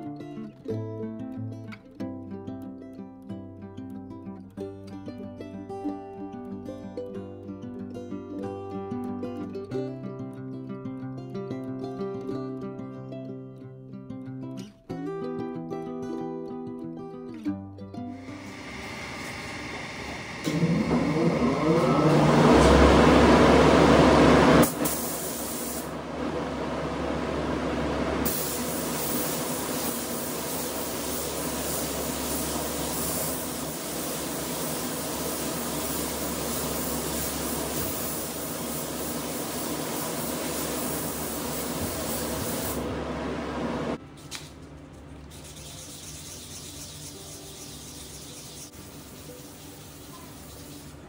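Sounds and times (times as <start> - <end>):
spray gun hissing: 18.2 - 26.0, 28.2 - 43.0, 46.0 - 51.0
motor whining: 18.4 - 23.9.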